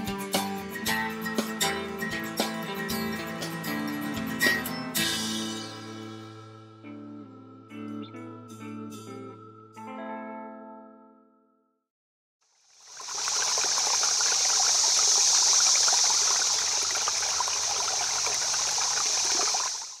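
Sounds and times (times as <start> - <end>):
stream water rushing and babbling: 12.6 - 20.0.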